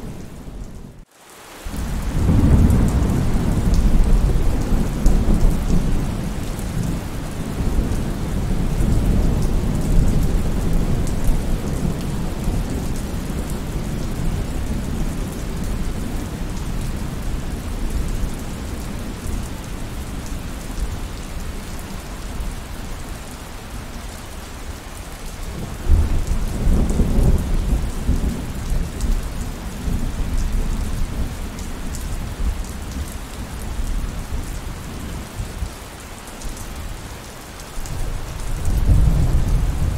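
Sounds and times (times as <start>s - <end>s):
heavy rain: 0.0s - 39.9s
rolling thunder: 37.9s - 39.9s.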